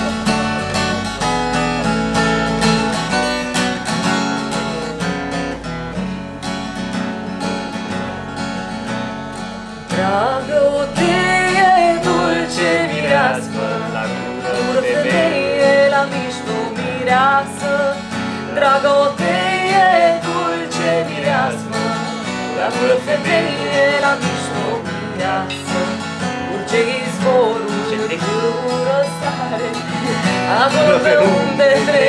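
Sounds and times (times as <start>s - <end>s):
acoustic guitar chords: 0.0s - 32.0s
woman singing: 9.9s - 32.0s.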